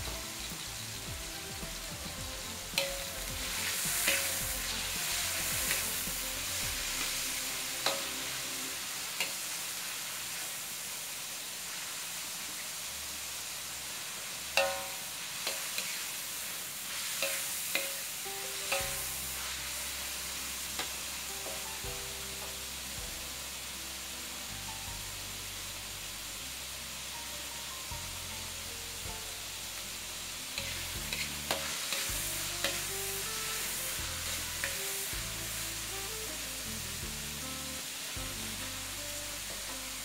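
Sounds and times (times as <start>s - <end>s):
beef sizzling in a wok: 0.0s - 40.0s
metal spatula scraping a pan: 2.4s - 9.5s, 16.9s - 21.6s, 30.6s - 35.6s.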